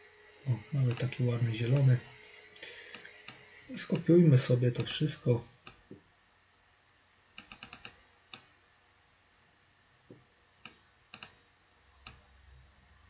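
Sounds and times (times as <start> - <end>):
mouse and keyboard clicks: 7.4 - 8.5, 10.6 - 11.4.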